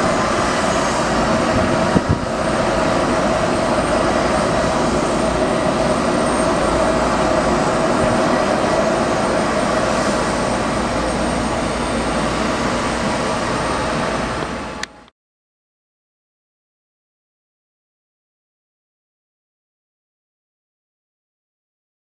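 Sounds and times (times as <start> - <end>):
jet engines roaring with whine: 0.0 - 15.1.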